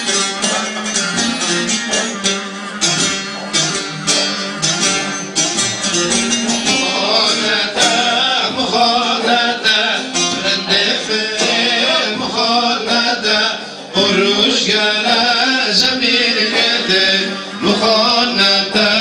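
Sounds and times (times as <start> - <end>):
electronic keyboard accompaniment: 0.0 - 19.0
plucked long-necked lute: 0.0 - 19.0
man singing: 6.6 - 19.0.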